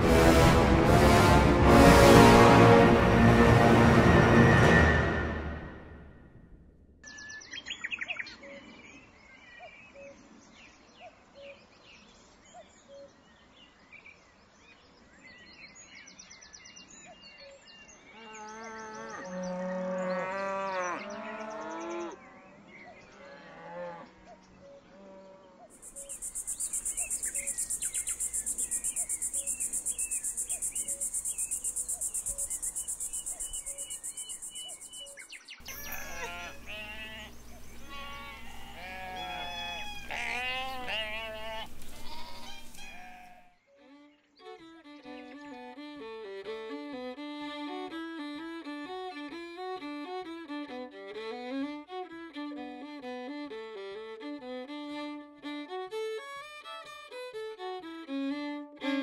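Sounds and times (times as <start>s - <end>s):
cow mooing: 18.4s - 22.1s, 35.7s - 43.4s
high-pitched pulsing hiss: 25.8s - 40.1s
faint chirping: 25.8s - 43.3s.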